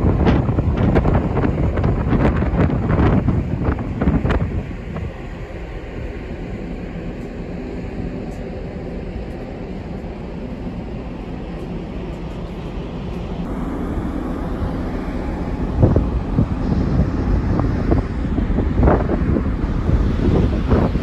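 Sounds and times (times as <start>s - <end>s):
ferry engines rumbling: 0.0s - 21.0s.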